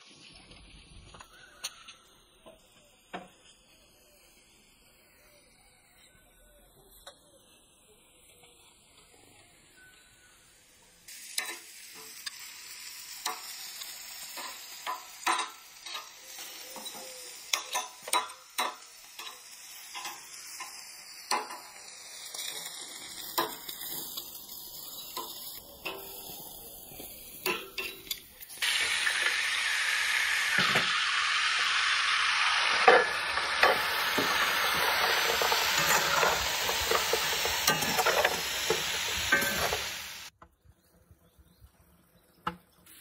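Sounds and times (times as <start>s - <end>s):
sausages sizzling on grill: 0.0s - 40.4s, 41.2s - 43.0s
food frying in pan: 10.5s - 40.4s.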